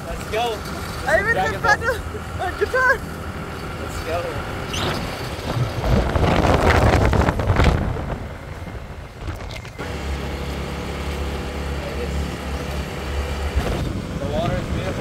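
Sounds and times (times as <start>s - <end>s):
motorbike engine drone: 0.0s - 15.0s
road noise: 0.0s - 15.0s
wind rushing over microphone: 4.4s - 9.8s.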